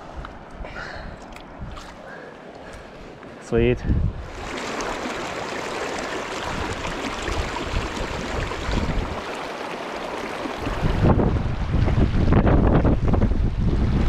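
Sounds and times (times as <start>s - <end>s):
wind buffeting microphone: 3.6s - 5.3s, 6.3s - 9.3s, 10.4s - 14.0s
river water rushing over rocks: 4.3s - 11.2s.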